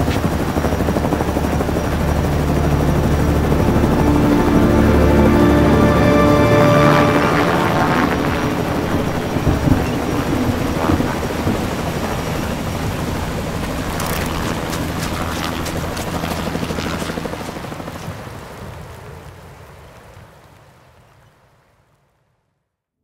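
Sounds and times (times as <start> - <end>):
music: 0.0 - 12.4, 13.6 - 17.9
helicopter rotor thrumming: 0.0 - 18.2.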